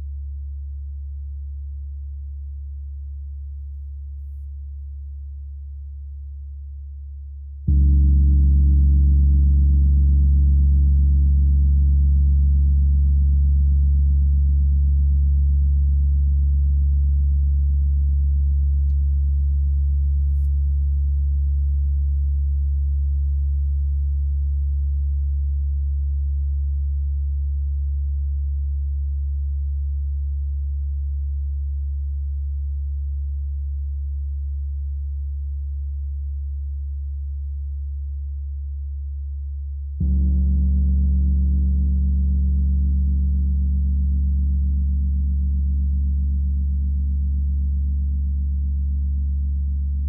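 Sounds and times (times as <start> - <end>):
gong deep sustained hum: 7.6 - 21.4, 39.9 - 50.0
gong struck with soft mallet: 7.7 - 10.3, 40.0 - 43.5.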